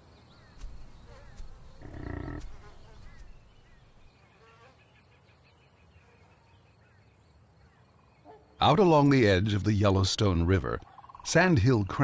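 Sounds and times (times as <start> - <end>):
animal call: 1.0 - 4.0.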